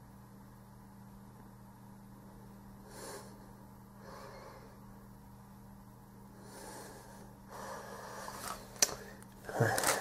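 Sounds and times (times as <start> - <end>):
low electrical hum: 0.0 - 10.0
soft nose breathing: 2.8 - 4.9, 6.3 - 9.8.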